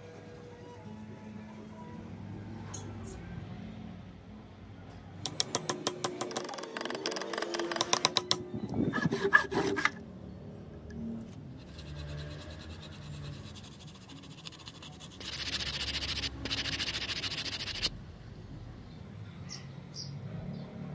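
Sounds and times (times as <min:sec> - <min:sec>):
sandpaper rubbing on wood: 0:11.6 - 0:17.9.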